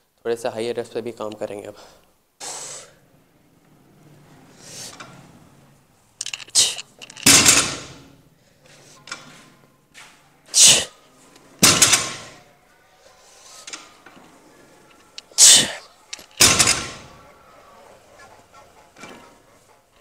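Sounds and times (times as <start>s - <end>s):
sharp forceful exhale: 1.8s - 3.0s, 4.6s - 5.0s.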